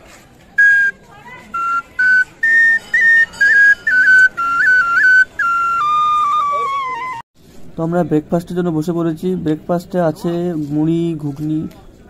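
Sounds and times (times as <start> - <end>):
bamboo flute melody: 0.5 - 7.3.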